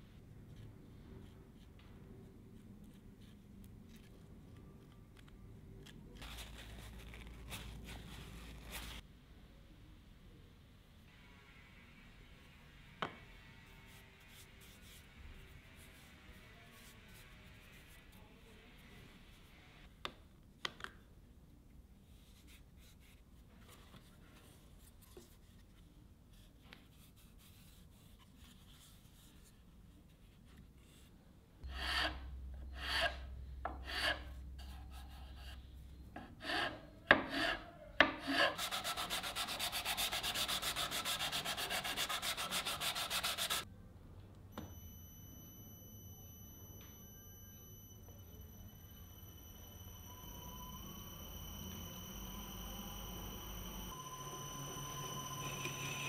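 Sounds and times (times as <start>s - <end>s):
metal file rasping on wood: 33.8s - 34.3s, 36.2s - 43.6s.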